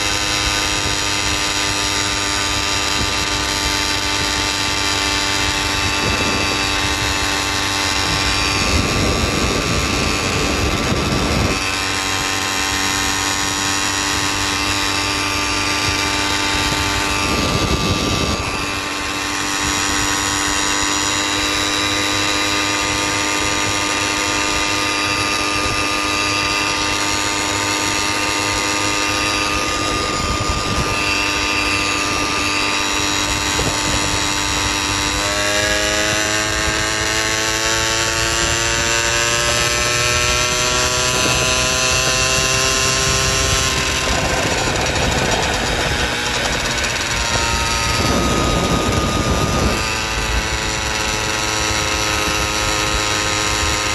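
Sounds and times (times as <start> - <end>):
small engine running steadily: 0.0 - 53.9.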